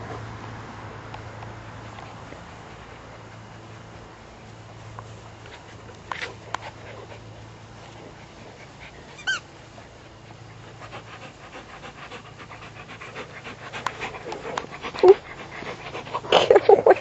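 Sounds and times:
dogs panting: 0.0 - 17.0
dog whining: 9.1 - 9.5, 14.9 - 15.2.

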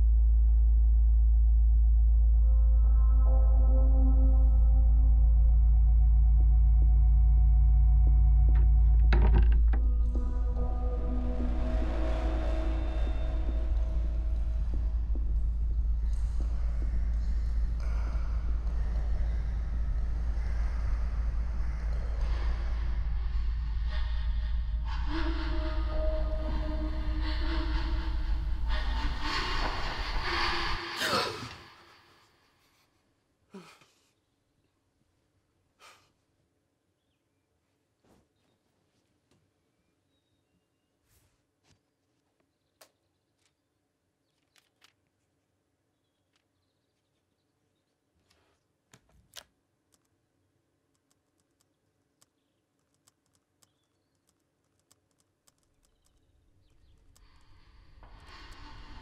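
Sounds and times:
low rumble and hiss: 10.0 - 25.4.

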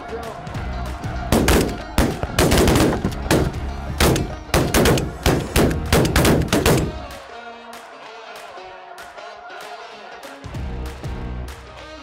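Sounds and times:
shotgun blasts: 1.3 - 7.0.

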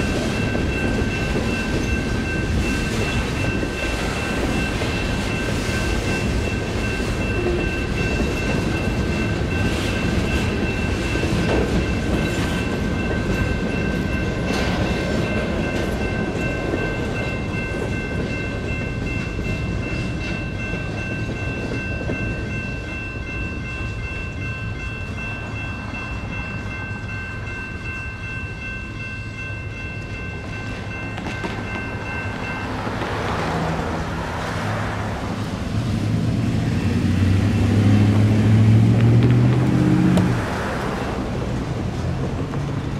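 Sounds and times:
freight train rumbling and clacking: 0.0 - 42.9
railroad crossing electronic bell: 0.0 - 42.9
car passing: 31.8 - 42.9.

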